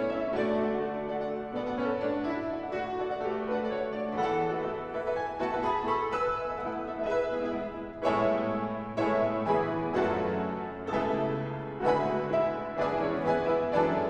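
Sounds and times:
pianos playing chords: 0:00.0 - 0:14.0.

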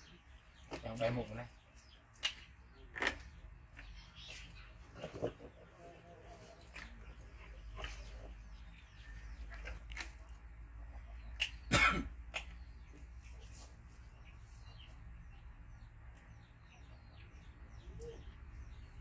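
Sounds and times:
cough-like burst: 0:11.7 - 0:12.2.

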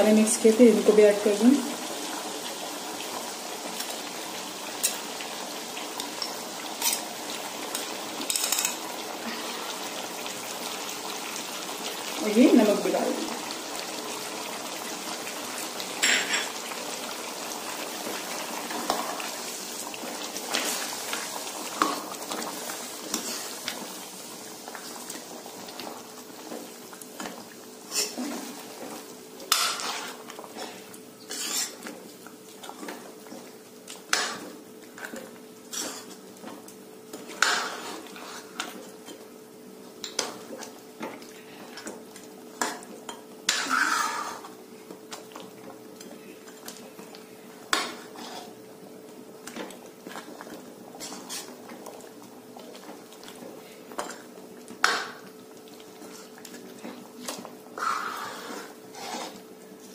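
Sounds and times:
meat sizzling: 0:00.0 - 0:41.1, 0:42.0 - 0:46.0, 0:46.8 - 0:59.9
metal spatula scraping pan: 0:29.5 - 0:31.8, 0:37.4 - 0:38.6, 0:43.5 - 0:44.5, 0:51.0 - 0:51.5, 0:58.0 - 0:59.4.

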